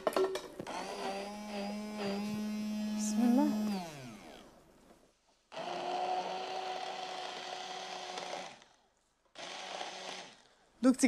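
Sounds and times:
immersion blender motor whine: 0.6 - 4.5, 5.5 - 8.8, 9.4 - 10.5.

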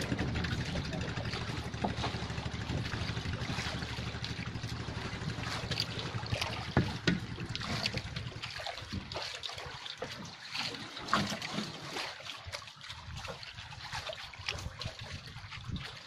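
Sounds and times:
water splashing against boat: 0.0 - 16.0
small knocks: 6.6 - 7.4.

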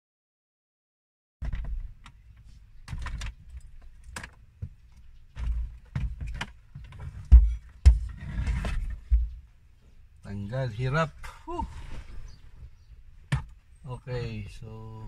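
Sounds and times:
panel thumps: 7.2 - 9.4.

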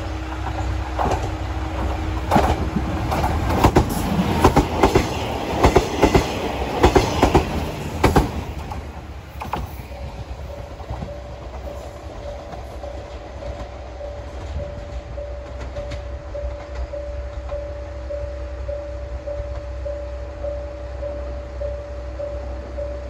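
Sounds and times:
train wheels clacking on rails: 0.0 - 20.6
diesel railcar idling: 0.0 - 23.0.

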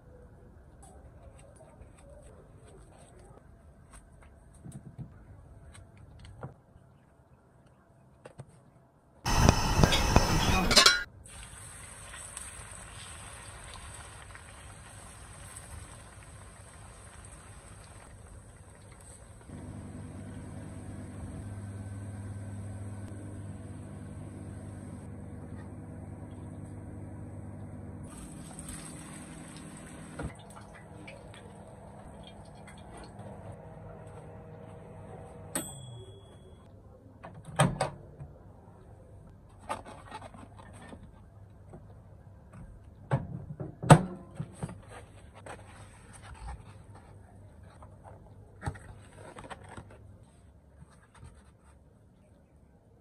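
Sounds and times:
microwave beep: 9.3 - 11.1
microwave oven humming: 9.3 - 11.1, 19.5 - 36.6
dishes clattering: 10.5 - 11.1.

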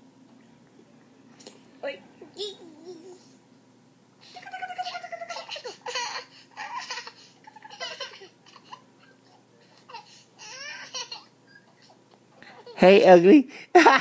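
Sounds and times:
toddler babbling and laughing: 2.3 - 3.4, 4.3 - 9.1.

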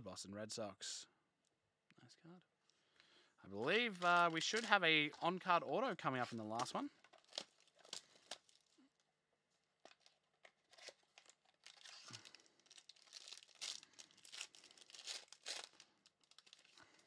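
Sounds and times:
plastic wrapping crinkling and tearing: 3.7 - 4.9, 6.2 - 9.0, 9.8 - 17.0.

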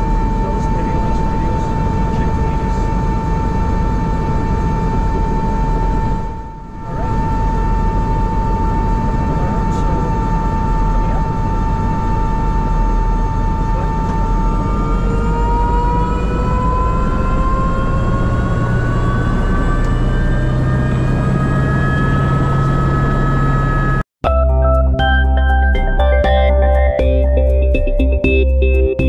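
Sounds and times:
helicopter turbine whine: 0.0 - 24.0
electronic music: 24.2 - 29.0.

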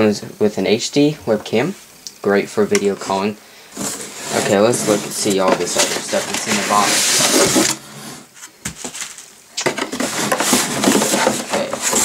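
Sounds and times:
cardboard scraping and rubbing: 3.7 - 12.0.

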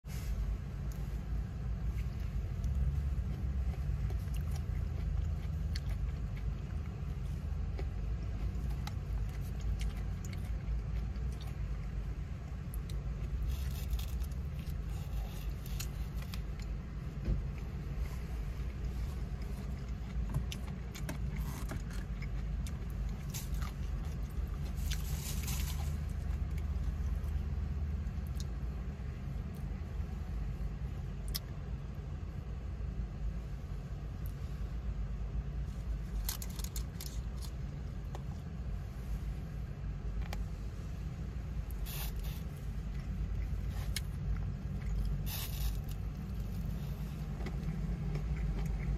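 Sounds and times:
low car rumble: 0.0 - 48.9
chewing: 2.0 - 16.8, 17.5 - 27.5, 41.7 - 48.9
crackle: 44.8 - 47.6.

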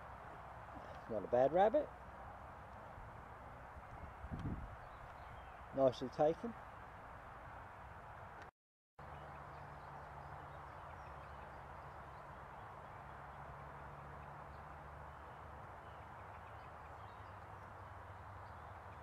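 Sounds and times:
small birds chirping: 3.8 - 6.9, 9.0 - 19.0.

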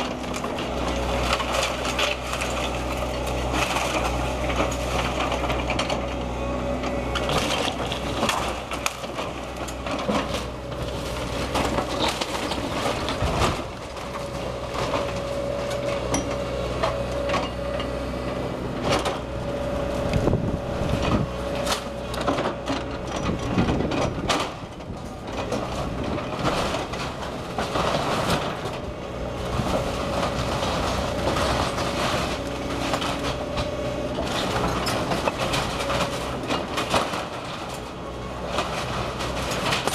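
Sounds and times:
bucket crunching wood and brick: 0.0 - 39.9
excavator engine whining: 0.0 - 39.9
debris clattering: 29.5 - 39.9.

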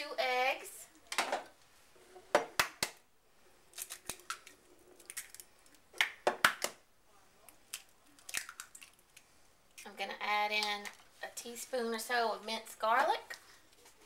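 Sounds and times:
eggs cracking against glass bowl: 3.7 - 6.8, 7.5 - 9.3.

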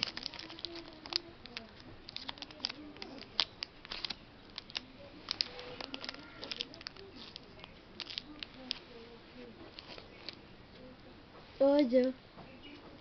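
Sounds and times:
plastic wrapper crinkling: 0.0 - 8.9, 9.6 - 10.4.

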